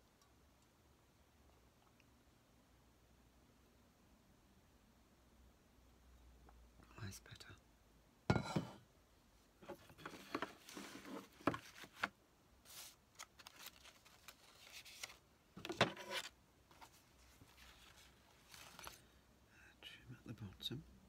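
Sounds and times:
paper rustling and scraping: 0:09.8 - 0:19.0.

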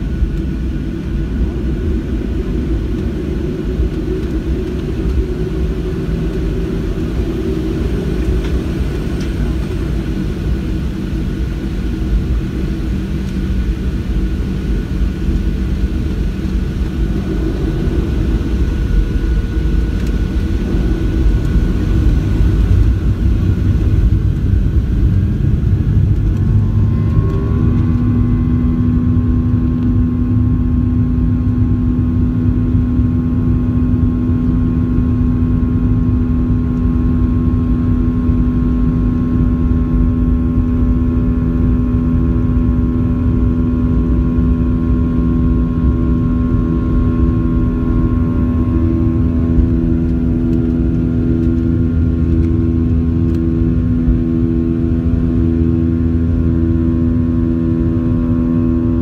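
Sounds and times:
jet engines rumbling and roaring: 0:00.0 - 0:59.0
jet engines spooling up whine: 0:00.0 - 0:59.0.

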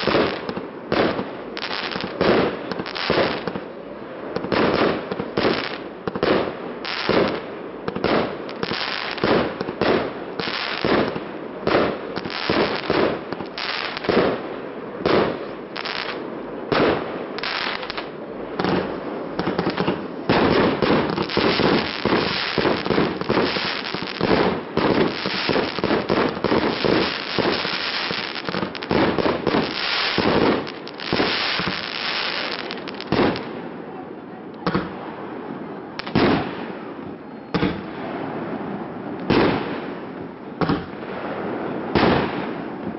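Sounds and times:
firework crackle: 0:00.0 - 0:33.8
fireworks bursting: 0:00.0 - 0:33.8, 0:34.6 - 0:42.9.

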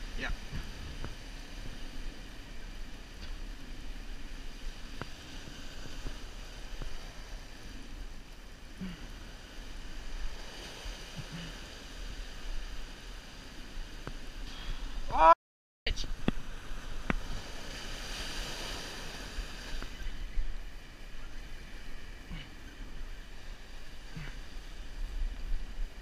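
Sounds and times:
wind on microphone: 0:00.0 - 0:08.2, 0:16.1 - 0:26.0
waves breaking over rocks: 0:00.0 - 0:15.2, 0:16.0 - 0:26.0.

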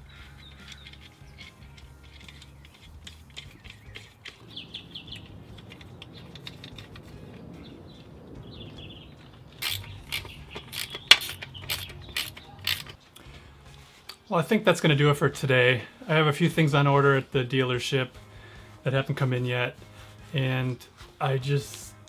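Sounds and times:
socket ratchet clicking: 0:00.1 - 0:07.0, 0:09.6 - 0:13.0
faint handling clicks: 0:00.3 - 0:08.1.

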